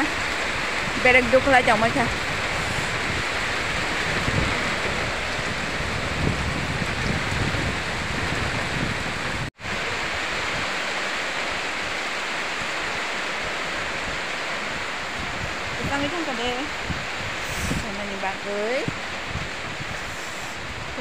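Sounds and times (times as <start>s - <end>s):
heavy rain falling: 0.0s - 21.0s
wind buffeting microphone: 0.0s - 21.0s.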